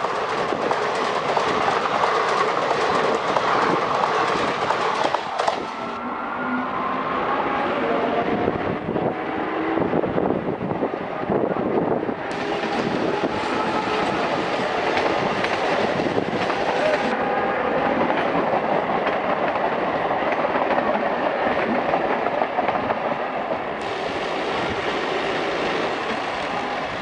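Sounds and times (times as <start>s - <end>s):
train wheels rolling on rails: 0.0s - 6.0s, 11.5s - 27.0s.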